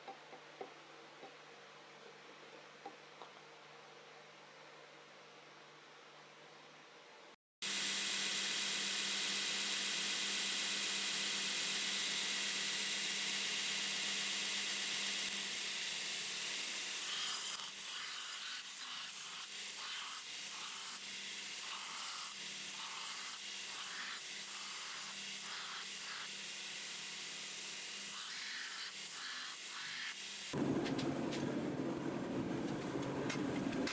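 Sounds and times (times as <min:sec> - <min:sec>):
belt grinder grinding knife blade: 0:08.3 - 0:29.3.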